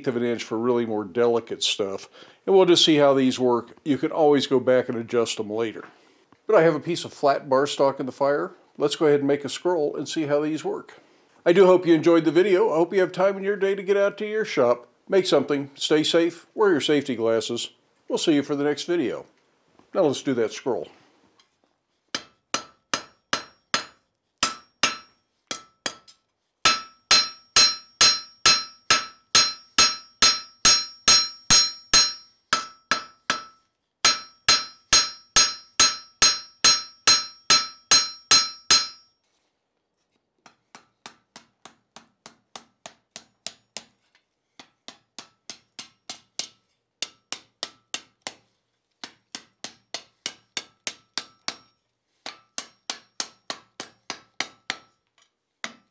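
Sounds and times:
hammer striking metal on anvil: 0:22.2 - 0:39.1, 0:42.3 - 0:43.9, 0:44.6 - 0:55.0.

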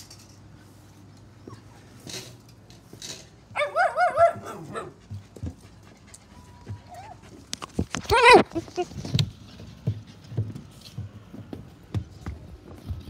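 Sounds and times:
puppies yipping and whining: 0:03.6 - 0:09.1.

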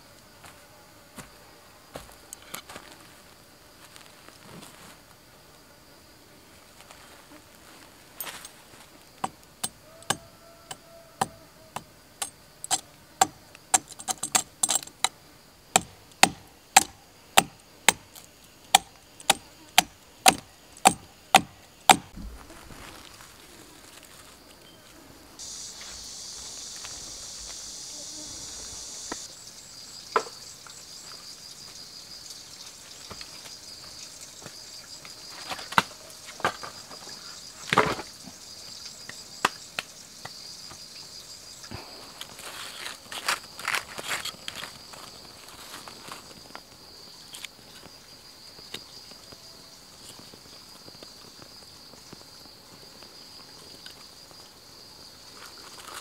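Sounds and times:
insects trilling: 0:00.0 - 0:56.0
blade chopping wood: 0:15.8 - 0:18.1, 0:18.7 - 0:22.2.

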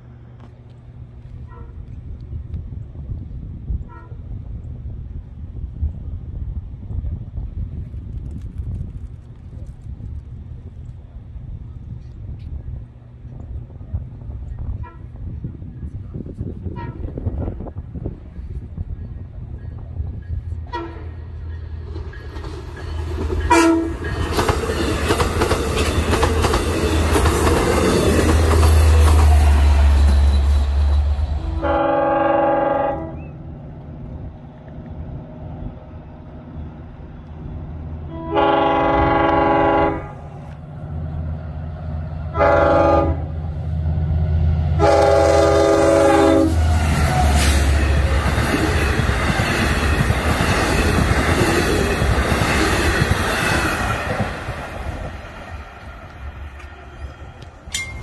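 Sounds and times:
low drone of passing train: 0:00.0 - 0:58.0
locomotive air horn: 0:01.3 - 0:01.9, 0:03.8 - 0:04.4, 0:16.6 - 0:17.4, 0:20.7 - 0:21.2, 0:23.5 - 0:24.0, 0:31.3 - 0:33.3, 0:38.1 - 0:40.5, 0:42.3 - 0:43.4, 0:44.8 - 0:47.6
train wheels clickety-clack: 0:21.4 - 0:31.4, 0:46.6 - 0:58.0
sharp metal clanks: 0:57.7 - 0:58.0.

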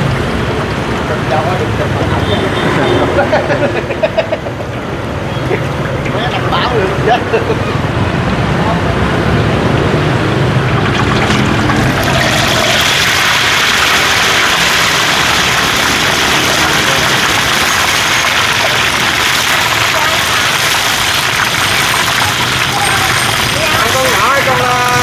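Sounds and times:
engine hum: 0:00.0 - 0:25.0
voices talking: 0:00.4 - 0:09.2, 0:21.7 - 0:25.0.

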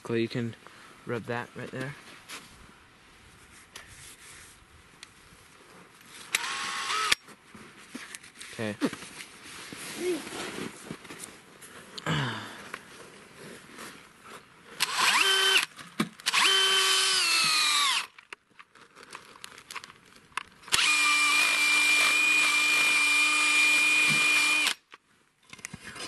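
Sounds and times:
cordless drill boring into wood: 0:06.3 - 0:07.2, 0:14.8 - 0:18.2, 0:20.7 - 0:24.8.

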